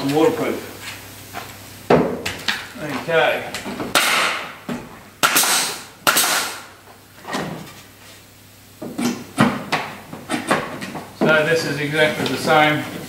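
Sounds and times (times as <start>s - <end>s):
nail gun shots with air hiss: 3.9s - 4.5s, 5.2s - 6.7s.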